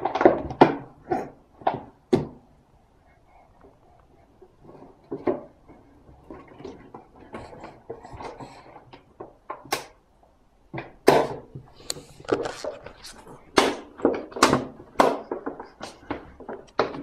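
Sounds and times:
plastic bottle knocking and crackling: 0:00.0 - 0:02.5, 0:10.7 - 0:17.0.

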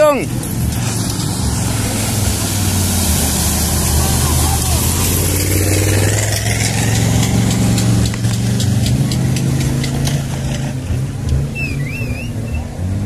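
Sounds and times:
truck engine revving: 0:00.0 - 0:13.0
vehicle driving through water: 0:00.0 - 0:13.0
warbling whistle: 0:11.5 - 0:12.7.

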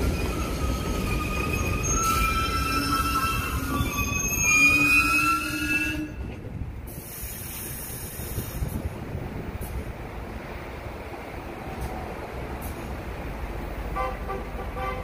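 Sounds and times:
high metallic train squeal: 0:00.0 - 0:08.8
train rumble: 0:00.0 - 0:15.0.

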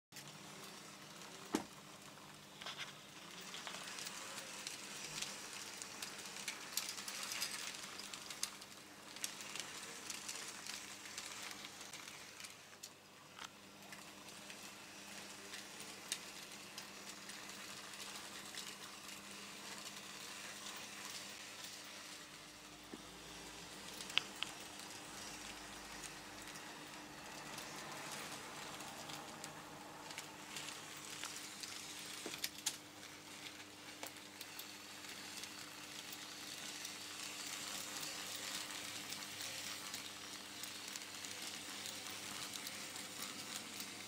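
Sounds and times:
wheels clicking on track: 0:00.2 - 0:21.8, 0:23.0 - 0:44.0.

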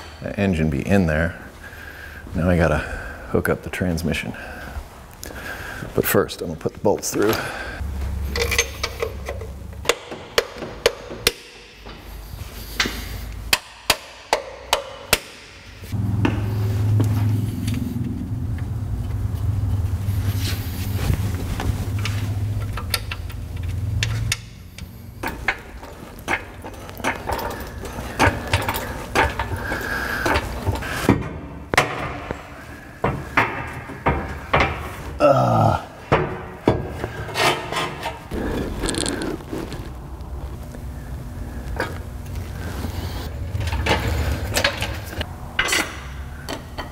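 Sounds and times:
steady low hum: 0:00.0 - 0:46.9
metal bolts and tools clanking: 0:08.3 - 0:12.0, 0:22.0 - 0:32.4, 0:43.6 - 0:46.9.

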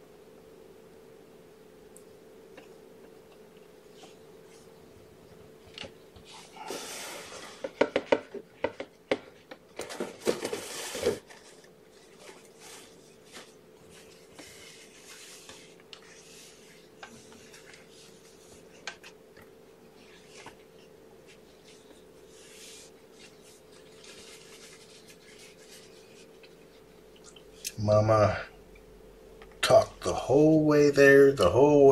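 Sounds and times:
faint steady hum: 0:00.0 - 0:31.9
paper rustling and crackling: 0:05.6 - 0:27.4.

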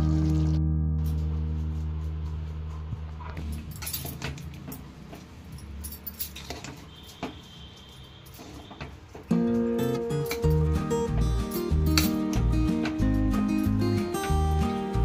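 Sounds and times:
background guitar music: 0:00.0 - 0:03.4, 0:09.3 - 0:15.0.

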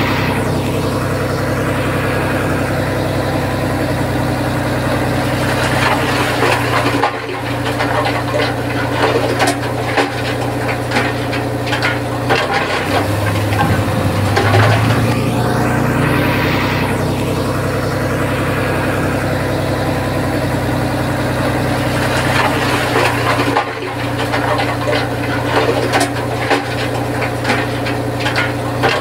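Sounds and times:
bulldozer diesel engine running: 0:00.0 - 0:29.0.

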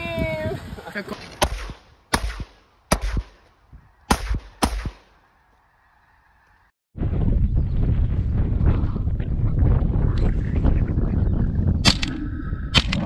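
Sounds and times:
wind on microphone: 0:00.0 - 0:00.9, 0:07.0 - 0:13.0
shotgun shots: 0:01.3 - 0:03.5, 0:04.1 - 0:05.2.

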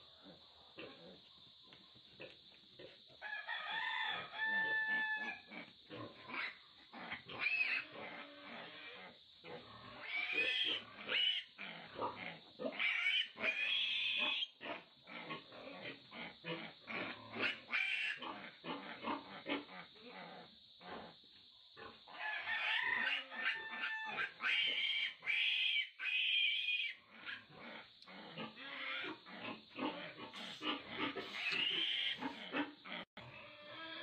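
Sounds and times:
piglet squealing: 0:30.4 - 0:32.5.

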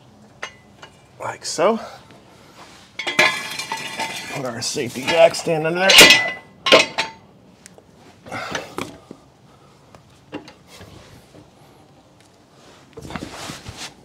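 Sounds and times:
metal jack stand knocks and scrapes: 0:05.0 - 0:07.2.

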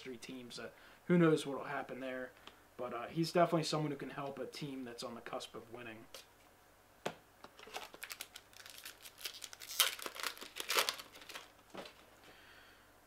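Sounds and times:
crinkly wrapper tearing: 0:07.6 - 0:12.0.

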